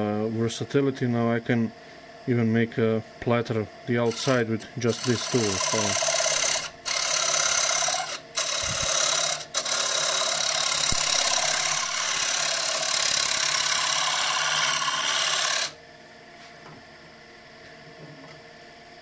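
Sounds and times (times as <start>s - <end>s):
lathe scraper cutting wood: 4.1s - 15.8s.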